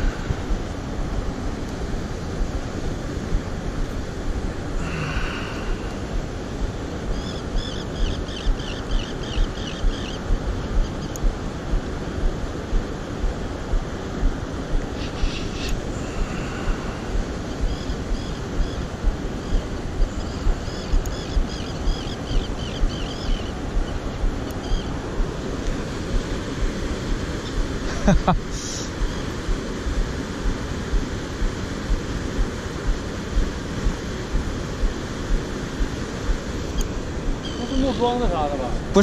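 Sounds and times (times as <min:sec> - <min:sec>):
river water rushing: 0:00.0 - 0:08.4, 0:09.9 - 0:39.0
wind buffeting microphone: 0:00.0 - 0:28.1.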